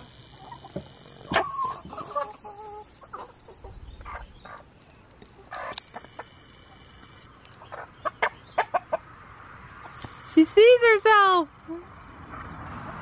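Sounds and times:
chickens clucking: 0:00.0 - 0:10.2.

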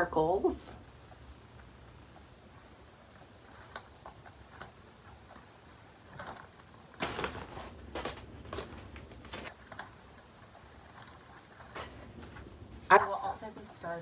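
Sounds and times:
paper rustling: 0:03.1 - 0:13.1.

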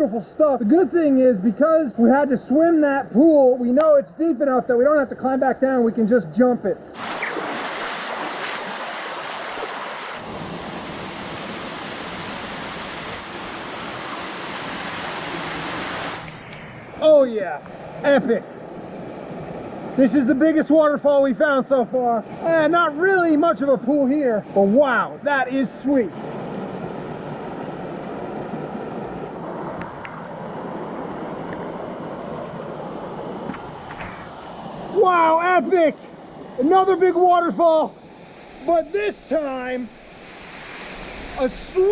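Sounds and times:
water rushing over rocks: 0:07.0 - 0:16.3, 0:37.6 - 0:41.9.

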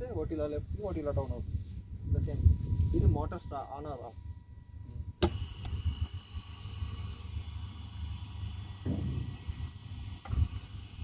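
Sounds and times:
drive motor whining: 0:04.0 - 0:11.0.

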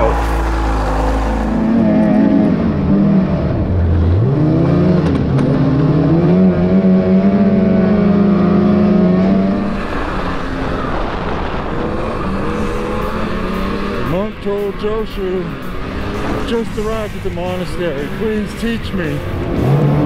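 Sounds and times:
snowmobile engine revving: 0:00.0 - 0:20.0.

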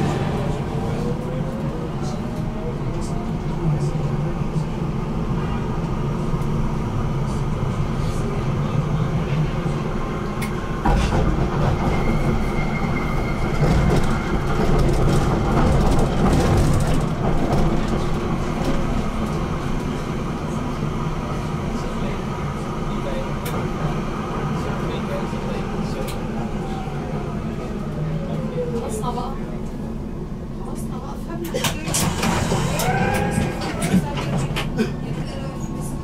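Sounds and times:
tram rumbling on rails: 0:00.0 - 0:36.0
high wheel squeal: 0:11.7 - 0:14.3
clattery track noise: 0:31.4 - 0:34.8.

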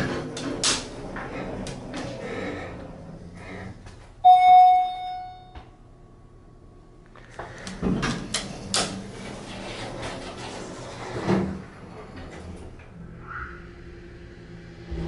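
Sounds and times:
elevator chime ding: 0:04.2 - 0:05.6.

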